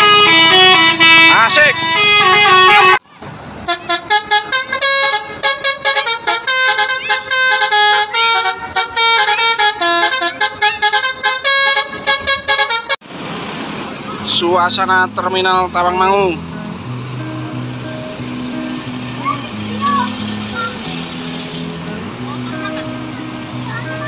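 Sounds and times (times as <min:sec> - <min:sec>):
multi-tone bus horn tune: 0:00.0 - 0:03.0, 0:03.6 - 0:13.0, 0:17.1 - 0:24.0.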